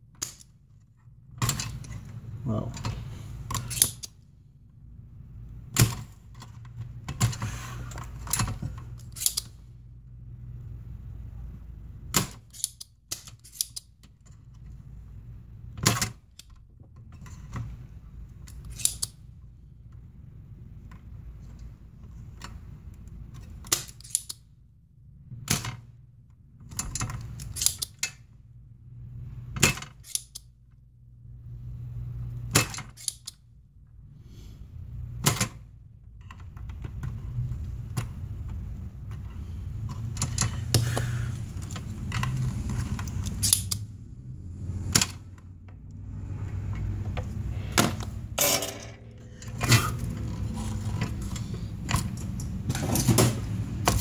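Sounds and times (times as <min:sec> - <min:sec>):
low steady hum: 0:30.5 - 0:54.0
desoldering pump snapping: 0:40.0 - 0:43.9.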